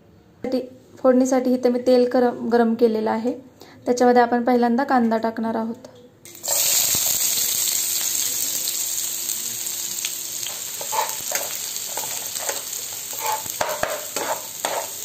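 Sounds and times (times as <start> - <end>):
onions sizzling in hot oil: 6.3 - 15.0
stirring scrapes in pan: 10.5 - 15.0.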